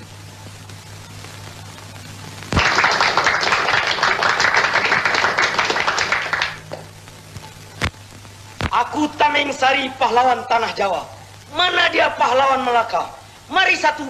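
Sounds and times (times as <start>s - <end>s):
people clapping: 2.5s - 7.0s.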